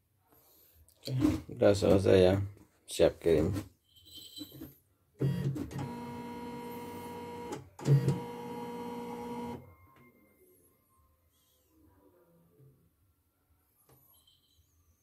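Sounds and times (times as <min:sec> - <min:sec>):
embroidery machine motor whine: 0:05.2 - 0:09.7.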